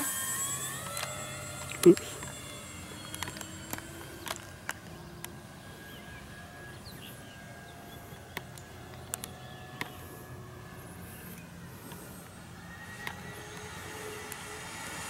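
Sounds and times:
sharp clicks: 0:00.0 - 0:05.4, 0:08.0 - 0:10.0
distant model plane motors droning: 0:00.0 - 0:15.0.

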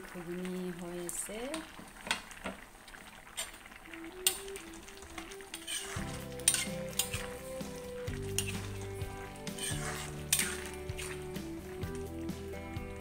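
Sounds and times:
light sizzle of frying: 0:00.0 - 0:13.0
slow background melody: 0:03.7 - 0:13.0
spoon clinking on pan: 0:06.5 - 0:07.3, 0:08.4 - 0:08.7, 0:09.6 - 0:10.7.

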